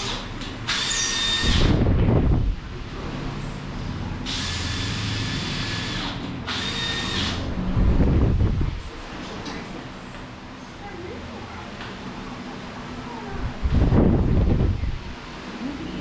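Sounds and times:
power drill whining: 0.0 - 1.7, 4.3 - 7.5.

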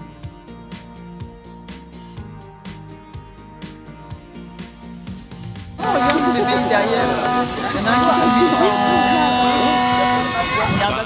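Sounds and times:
steady drum beat: 0.0 - 11.0
held music notes: 3.7 - 11.0.

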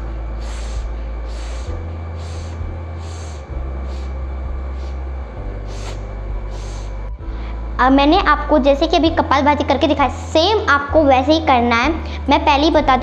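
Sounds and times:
forceful nasal exhalations: 0.0 - 7.7
steady low hum: 0.0 - 13.0.

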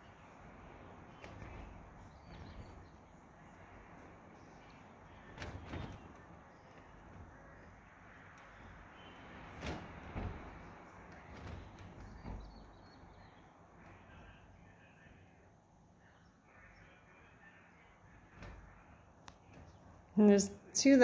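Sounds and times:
soft knocks: 0.7 - 14.2
faint bird chirps: 10.2 - 20.1.

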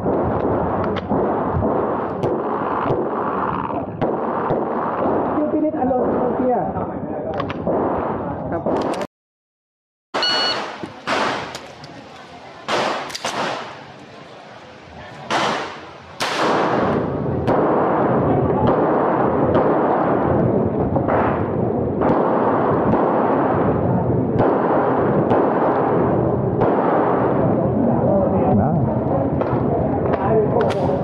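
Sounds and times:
loud steady rushing noise: 0.0 - 9.0, 10.2 - 31.0
handgun shots: 10.2 - 11.9, 12.7 - 13.8, 15.3 - 17.6.

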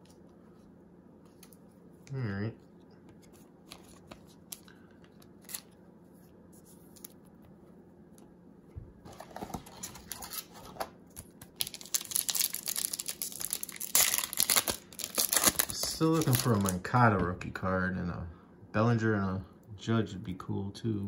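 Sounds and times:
foil wrapper crinkling and tearing: 9.3 - 16.9.

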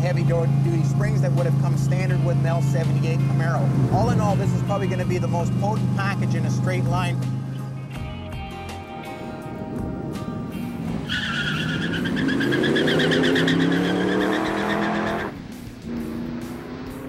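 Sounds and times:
car engine revving: 0.0 - 8.0, 9.1 - 17.0
tires squealing: 10.5 - 17.0.

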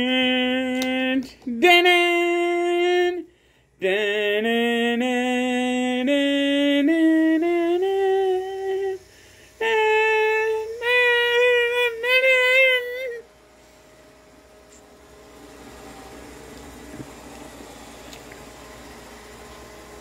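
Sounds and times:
person humming: 0.0 - 13.3
person breathing: 3.3 - 3.8, 9.0 - 9.6.

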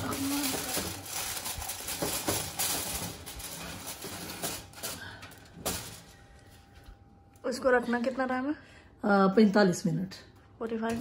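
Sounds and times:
foil rustling and crinkling: 0.0 - 6.4.

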